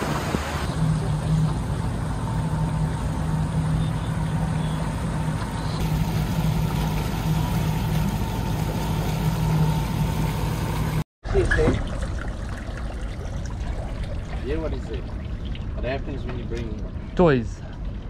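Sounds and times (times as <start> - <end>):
wind and water rushing: 0.0 - 0.7
boat engine humming: 0.0 - 18.0.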